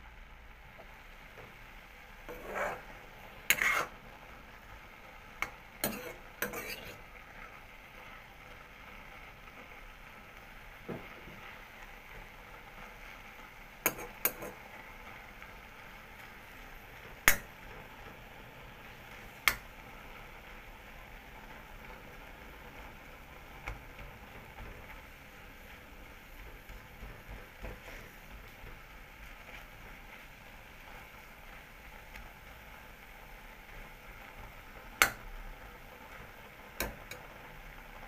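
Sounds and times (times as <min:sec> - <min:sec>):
vegetables sizzling: 0:00.0 - 0:38.0
metal spoon scraping a pan: 0:02.2 - 0:04.0, 0:05.4 - 0:07.0, 0:13.8 - 0:14.6.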